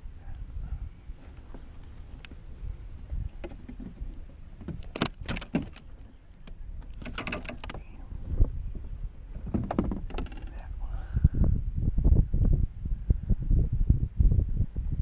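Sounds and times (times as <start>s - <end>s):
wind rumble on microphone: 0.0s - 15.0s
rattling clicks: 4.6s - 7.9s, 9.4s - 10.6s.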